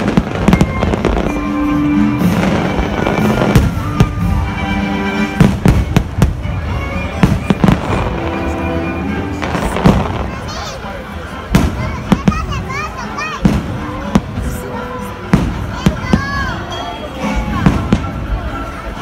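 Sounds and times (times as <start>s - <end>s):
music with held tones: 0.0s - 10.3s
fireworks bangs: 0.0s - 18.6s.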